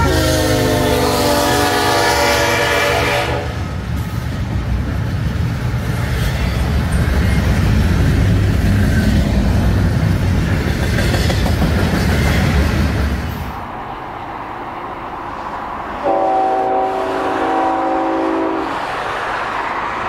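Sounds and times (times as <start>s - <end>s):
train air horn chord: 0.0s - 3.6s, 16.0s - 18.7s
freight train rumble and clatter: 0.0s - 20.0s.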